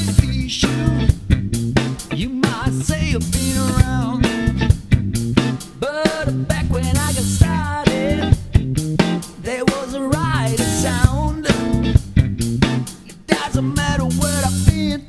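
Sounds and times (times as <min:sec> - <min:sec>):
band playing: 0:00.0 - 0:15.0
drum kit with cymbals: 0:00.0 - 0:15.0
electric bass: 0:00.0 - 0:15.0
electric guitar: 0:00.0 - 0:15.0
pitch-bending melody line: 0:06.7 - 0:09.2.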